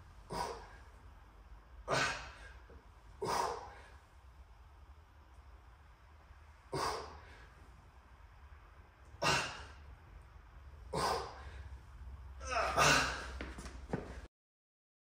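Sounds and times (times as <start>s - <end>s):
man exhaling forcefully: 0.3s - 0.9s, 1.9s - 2.6s, 3.2s - 4.0s, 6.7s - 7.5s, 9.2s - 9.8s, 10.9s - 11.7s, 12.4s - 13.4s.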